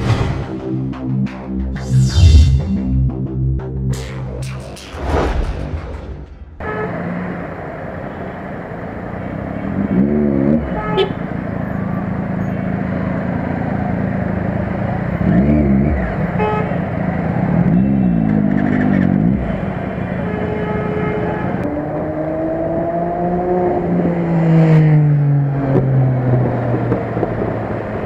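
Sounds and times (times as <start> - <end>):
vehicle horns honking: 6.6 - 7.2, 10.5 - 11.8, 16.3 - 16.8, 20.2 - 21.6
motorcycle and car engines: 6.6 - 28.0.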